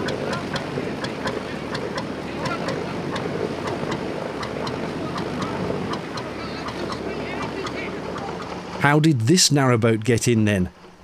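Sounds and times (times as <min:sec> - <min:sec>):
sharp ticks: 0:00.0 - 0:08.6
truck engine running: 0:00.0 - 0:09.0
water wash: 0:00.0 - 0:09.7.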